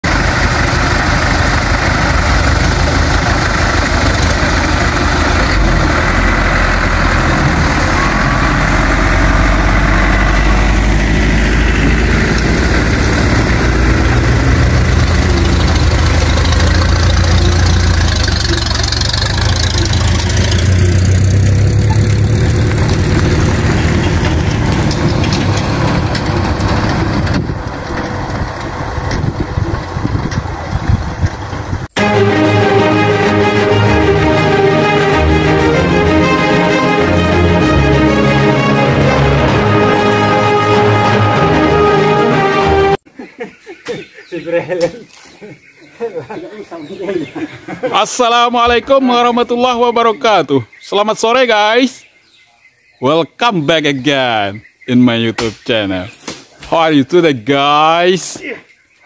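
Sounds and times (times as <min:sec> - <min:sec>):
truck engines idling: 0:00.0 - 0:43.1.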